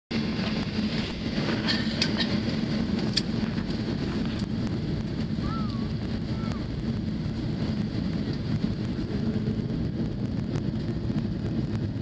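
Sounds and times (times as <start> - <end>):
jet engines droning: 0.1 - 12.0.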